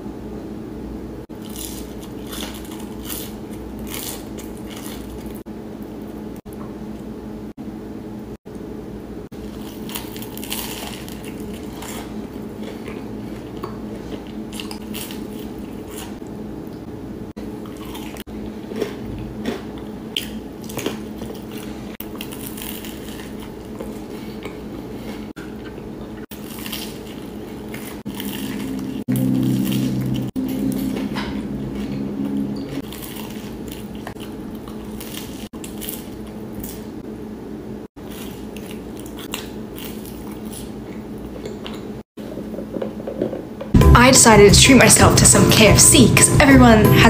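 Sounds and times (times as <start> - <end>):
low hum: 0.0 - 35.5, 43.7 - 47.0
biting and chewing: 1.3 - 5.4, 9.4 - 16.4, 17.4 - 37.0, 38.0 - 42.5.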